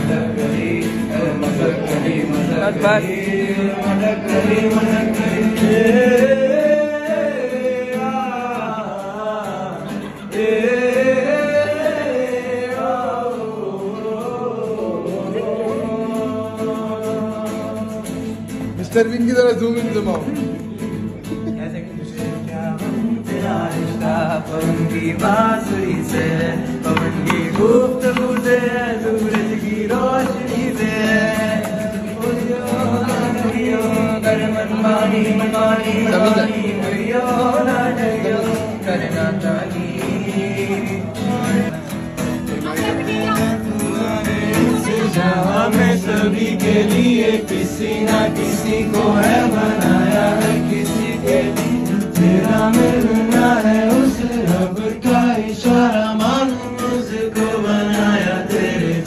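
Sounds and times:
group of men singing: 0.0 - 18.9, 20.6 - 59.0
acoustic guitar: 0.0 - 59.0.

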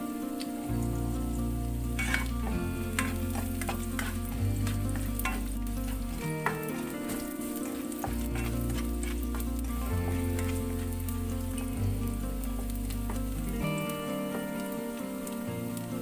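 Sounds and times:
garlic sizzling in oil: 0.0 - 16.0
spatula scraping a pan: 2.0 - 11.7.

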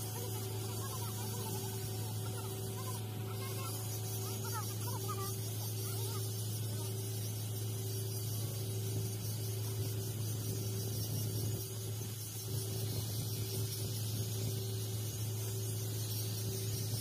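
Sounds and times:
welding arc humming and hissing: 0.0 - 17.0.

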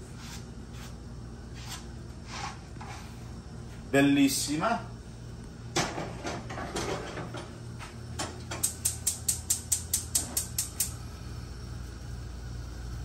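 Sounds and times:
gas igniter clicking rapidly: 8.6 - 11.0.

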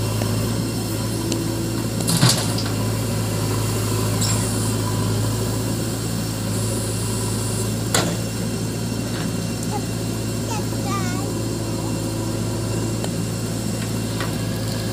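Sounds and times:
diesel engine running: 0.0 - 14.9.

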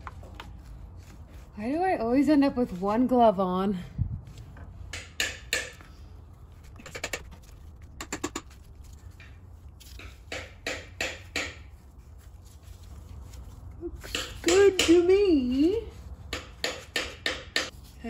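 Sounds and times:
rubber rubbing and clicking: 6.6 - 9.1.

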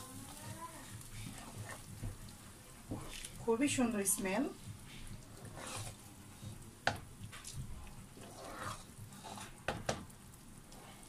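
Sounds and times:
faint sizzle: 0.0 - 11.0
spatula scraping pan: 0.9 - 1.9, 4.8 - 6.5, 7.4 - 10.0
spatula knocking against pan: 6.8 - 7.1, 9.7 - 10.1.

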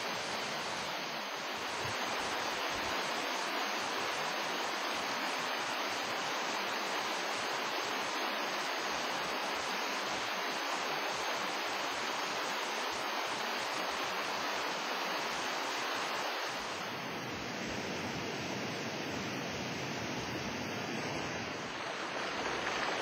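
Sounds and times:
steady rushing noise: 15.0 - 23.0.

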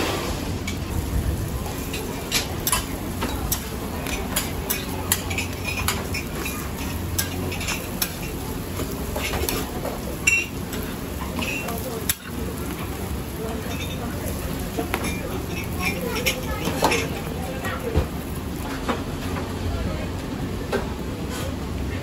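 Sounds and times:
frying sizzle: 0.0 - 22.0
metal spatula clinking on griddle: 1.8 - 12.9, 13.6 - 14.2.

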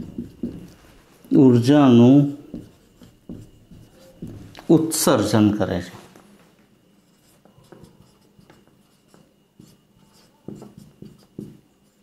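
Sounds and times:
marker scratching on whiteboard: 0.0 - 1.1, 1.9 - 5.0, 7.0 - 12.0.

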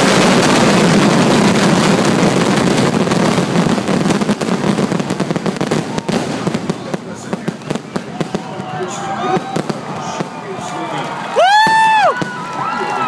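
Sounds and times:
fireworks bursting and crackling: 0.0 - 13.0.

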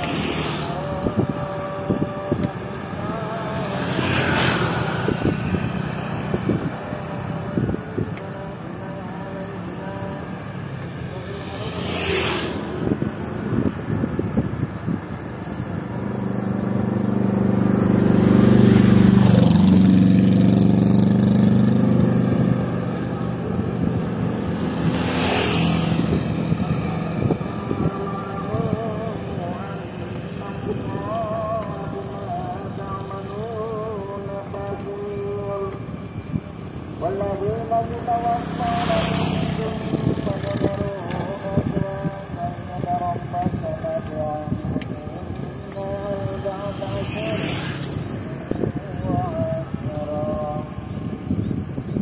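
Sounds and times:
hiss of passing scooter: 0.0 - 7.7, 11.0 - 13.4, 45.8 - 50.6
vehicle rushing by: 0.0 - 8.1, 10.0 - 33.9, 35.2 - 51.6
scooter engines running: 0.0 - 52.0
wind noise on microphone: 0.0 - 52.0.

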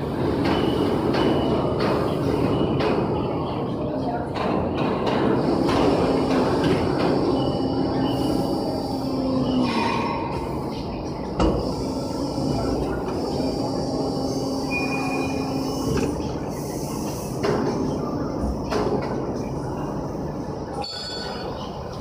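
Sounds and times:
press mechanical hum: 5.0 - 20.7.

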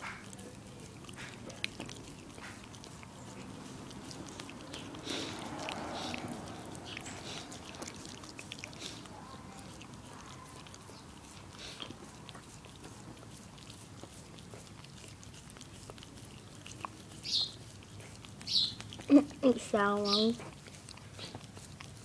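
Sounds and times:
dog licking a lollipop: 0.0 - 22.0.

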